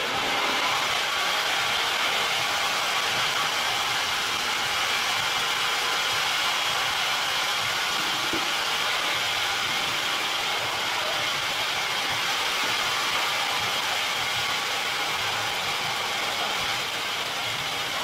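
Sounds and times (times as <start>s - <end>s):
band saw whirring: 0.0s - 18.0s.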